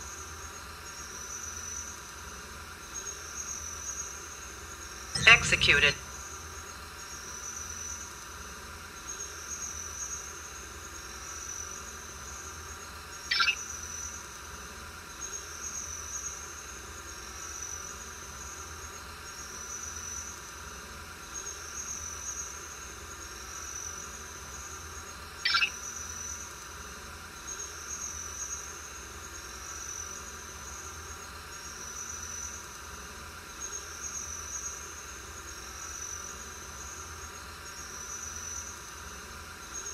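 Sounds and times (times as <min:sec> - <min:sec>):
insect trills: 0:11.2 - 0:14.4, 0:21.2 - 0:39.9
sharp high-pitched calls: 0:13.3 - 0:13.6, 0:25.5 - 0:25.8.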